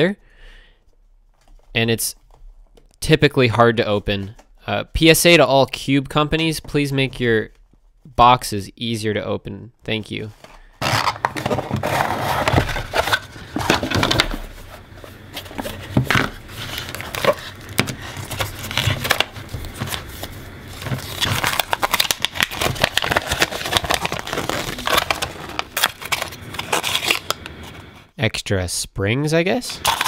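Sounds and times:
cardboard and plastic packaging crackling: 0:10.2 - 0:28.0.

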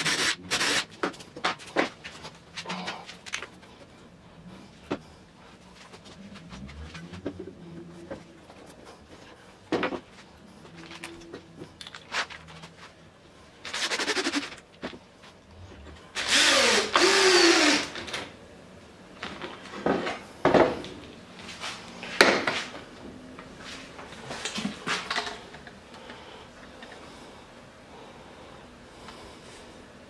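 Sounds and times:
cordless drill driving screw: 0:16.2 - 0:18.0.

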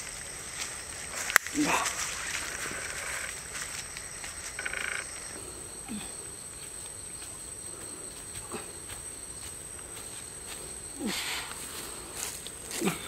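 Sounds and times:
low falling croaks: 0:00.0 - 0:06.6
high-pitched insect drone: 0:00.0 - 0:08.2.

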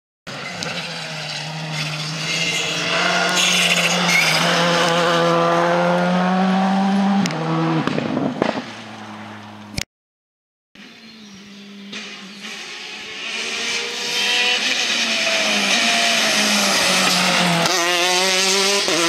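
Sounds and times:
rally car engine at high revs: 0:00.3 - 0:09.4, 0:11.5 - 0:19.0.

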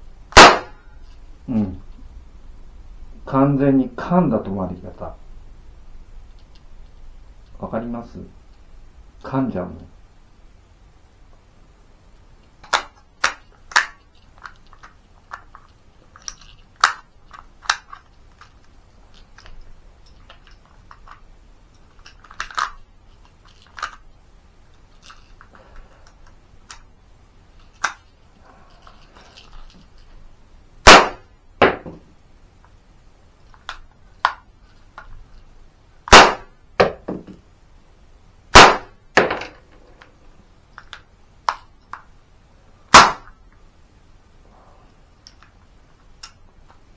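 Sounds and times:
cap gun bangs: 0:00.4 - 0:00.8, 0:30.8 - 0:31.8, 0:36.1 - 0:37.0, 0:38.5 - 0:39.4, 0:42.9 - 0:43.3.

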